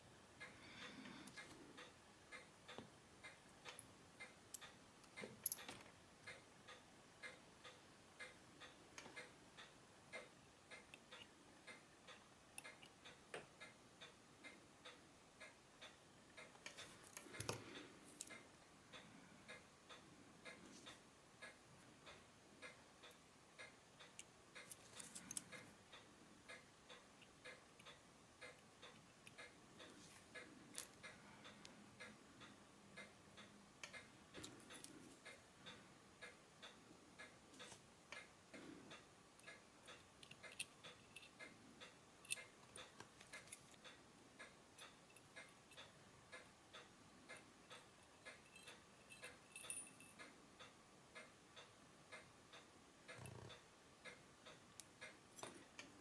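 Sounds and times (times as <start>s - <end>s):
pocket watch ticking: 0.4s - 56.0s
tools tapping on metal: 48.4s - 50.2s.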